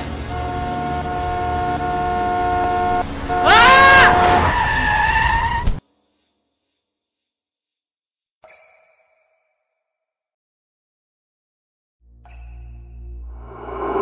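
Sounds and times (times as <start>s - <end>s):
vehicle horn blaring: 0.0s - 4.6s
tyres screeching in a skid: 0.5s - 5.8s.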